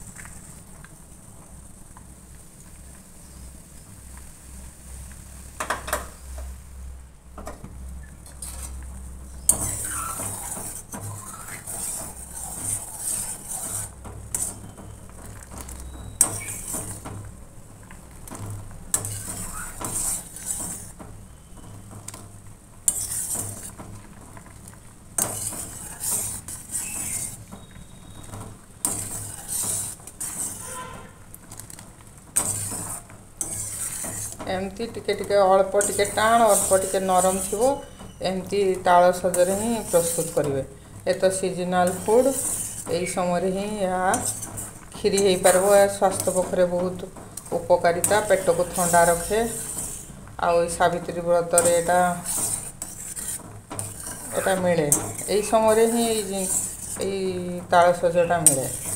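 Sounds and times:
metal spoon scraping steel pan: 0:08.2 - 0:17.3, 0:18.4 - 0:22.2, 0:22.8 - 0:24.1, 0:25.2 - 0:58.9.

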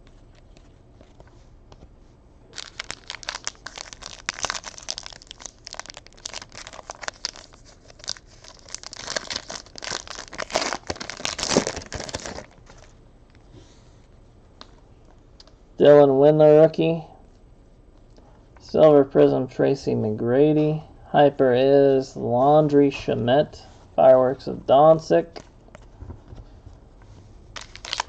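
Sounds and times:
foil wrapper crinkling and tearing: 0:02.5 - 0:12.9, 0:27.5 - 0:28.0.

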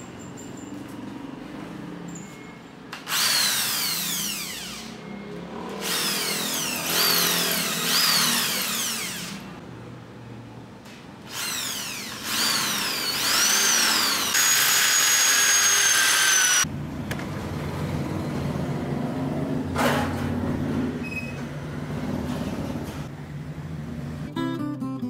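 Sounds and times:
electric drill motor whine: 0:03.1 - 0:05.0, 0:05.8 - 0:09.5, 0:11.3 - 0:16.7.

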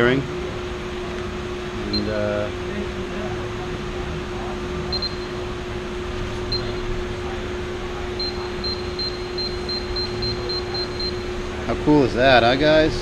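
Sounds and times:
steady low hum: 0:00.0 - 0:13.0
short high beeps: 0:04.9 - 0:05.4, 0:06.5 - 0:06.9, 0:08.2 - 0:11.3.

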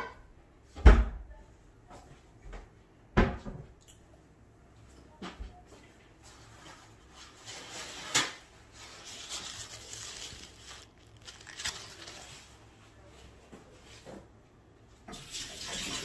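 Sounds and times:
rustling: 0:06.3 - 0:14.0.

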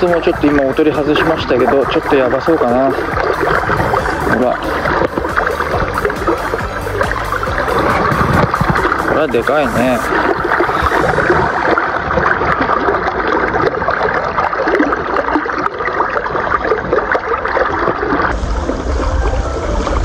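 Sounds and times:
river water splashing and gurgling: 0:00.0 - 0:20.0
rushing water with low rumble: 0:00.0 - 0:20.0.

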